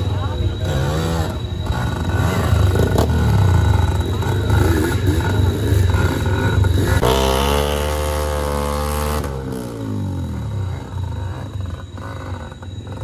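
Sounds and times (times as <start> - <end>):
engine revving in mud: 0.0 - 13.0.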